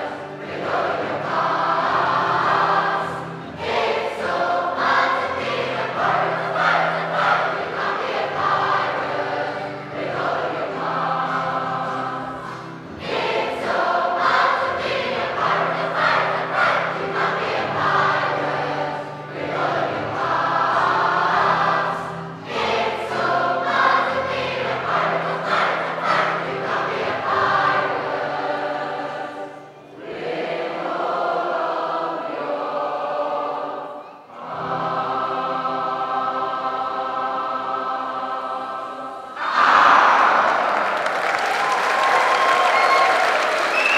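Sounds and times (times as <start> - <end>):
choir singing a sea shanty: 0.0 - 43.9
audience applause: 39.6 - 43.9.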